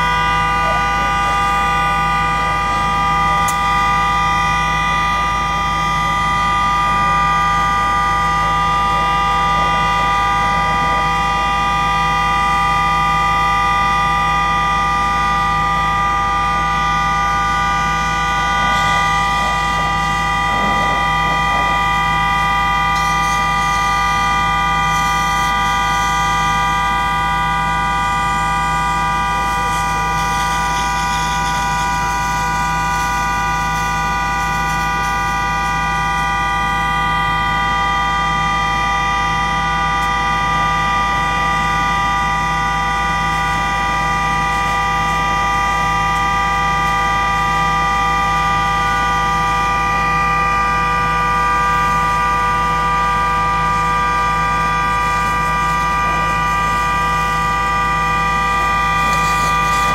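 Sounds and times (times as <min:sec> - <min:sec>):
vehicle horn blaring: 0:00.0 - 0:59.9.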